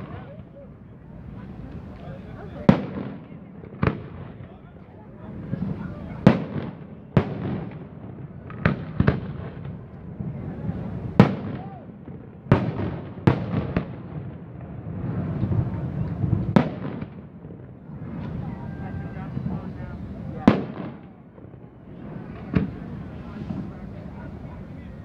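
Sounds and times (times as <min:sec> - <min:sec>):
firework shells booming: 0:05.3 - 0:25.0.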